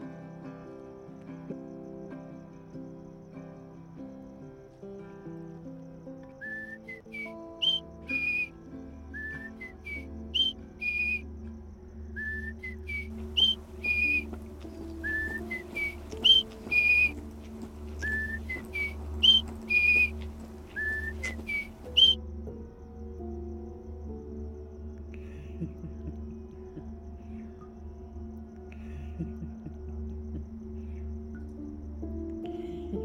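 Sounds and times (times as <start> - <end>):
whistled phrase: 6.4 - 8.5, 9.1 - 11.2, 12.2 - 22.2
low sustained notes and drone: 7.6 - 33.0.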